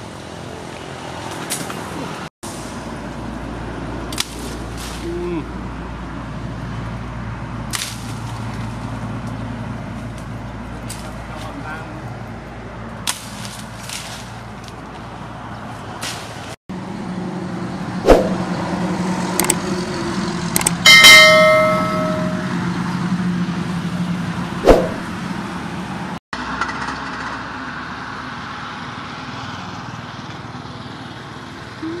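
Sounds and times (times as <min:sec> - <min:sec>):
sharp knocks and clicks: 0:19.4 - 0:19.6
bright bell ding: 0:20.9 - 0:22.6.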